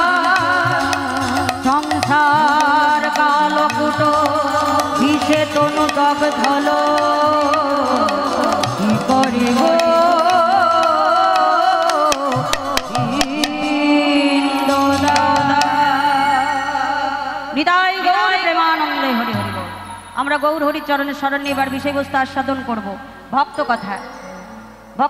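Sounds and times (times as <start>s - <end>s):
hand drum strokes: 0.0s - 16.5s
wavering devotional vocal melody: 0.0s - 25.0s.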